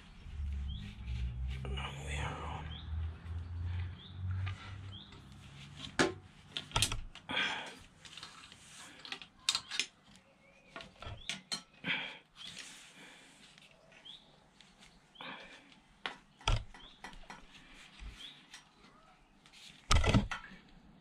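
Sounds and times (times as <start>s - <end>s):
hose clamp clicks and knocks: 16.4s - 17.4s, 19.9s - 20.5s.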